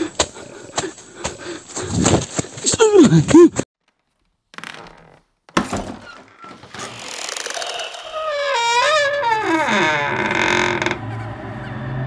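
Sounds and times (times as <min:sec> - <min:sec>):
wooden door hinge creaking: 0:03.9 - 0:11.1.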